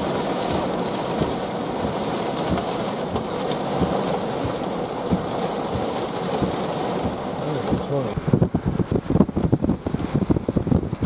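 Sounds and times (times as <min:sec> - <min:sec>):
raindrops tapping: 0:00.0 - 0:08.5
heavy rain on a vehicle: 0:00.0 - 0:11.0.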